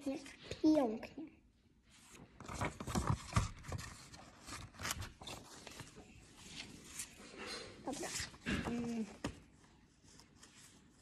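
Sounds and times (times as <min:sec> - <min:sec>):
paper rustling and crinkling: 0:02.0 - 0:11.0.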